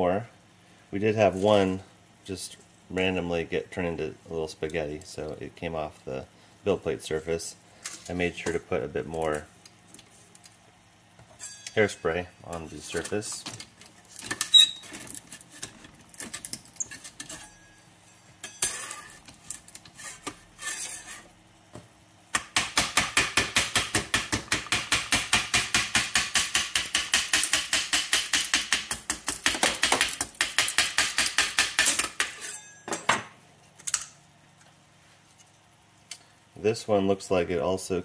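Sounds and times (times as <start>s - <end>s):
putty knife scraping: 18.5s - 21.3s.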